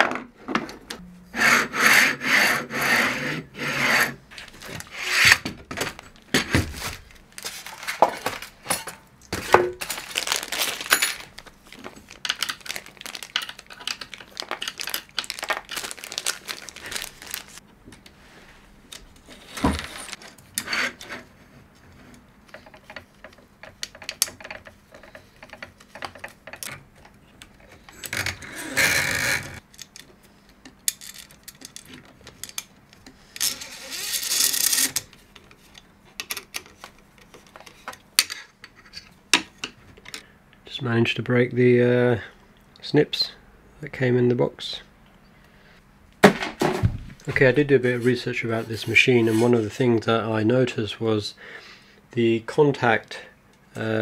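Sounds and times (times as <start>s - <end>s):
metal parts rubbing and scraping: 33.2s - 35.1s.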